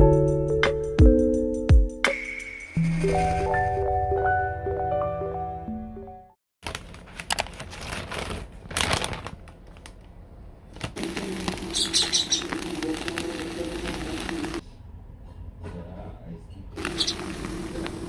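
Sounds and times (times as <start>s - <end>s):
plastic pouch crinkling: 6.6s - 10.1s, 10.7s - 14.6s.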